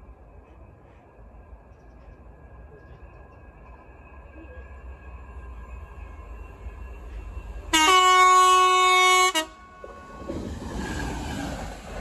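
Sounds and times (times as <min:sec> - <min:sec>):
locomotive passing close by: 0:00.0 - 0:12.0
locomotive horn blast: 0:07.7 - 0:10.2.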